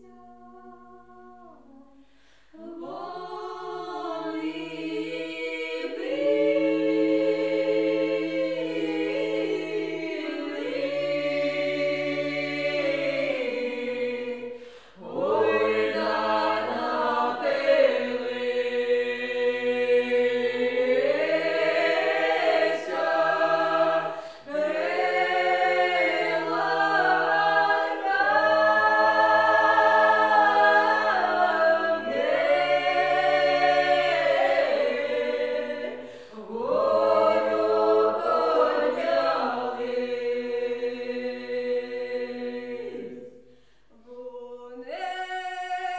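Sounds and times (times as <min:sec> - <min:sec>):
group singing a cappella: 0:00.0 - 0:45.9.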